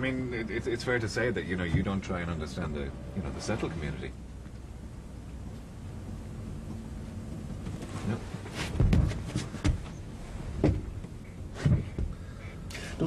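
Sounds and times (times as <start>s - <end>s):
low steady rumble: 0.0s - 13.0s
rustling: 6.5s - 12.2s
dull knocks and bumps: 6.6s - 12.2s.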